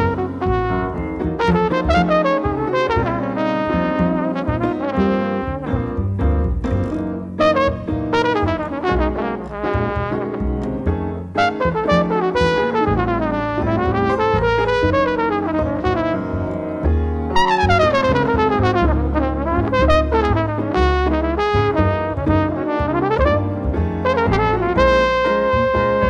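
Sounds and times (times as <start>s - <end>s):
bass: 0.0s - 26.0s
jazz trumpet soloing: 0.0s - 26.0s
piano: 0.0s - 26.0s.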